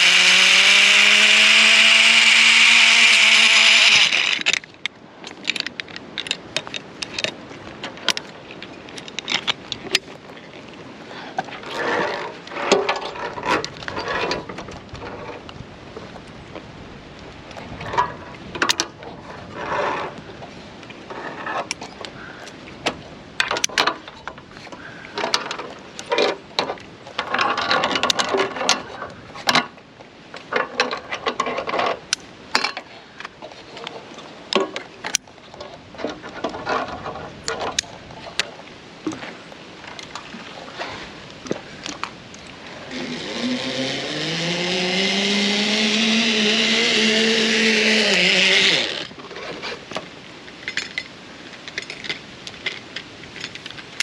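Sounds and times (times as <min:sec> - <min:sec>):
zip-line pulley whining: 0:00.0 - 0:04.6, 0:42.7 - 0:49.2.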